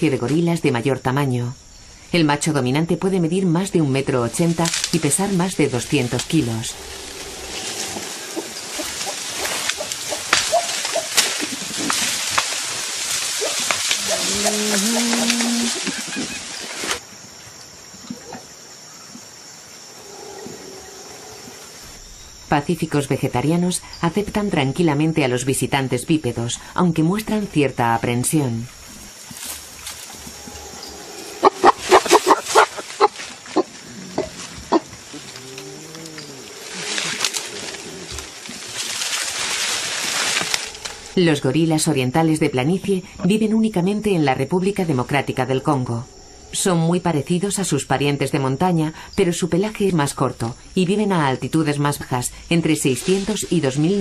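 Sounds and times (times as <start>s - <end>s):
forest background: 0.0s - 54.0s
crackling with sharp snaps: 8.7s - 15.8s
gorilla grunting: 14.0s - 16.3s, 30.3s - 38.3s.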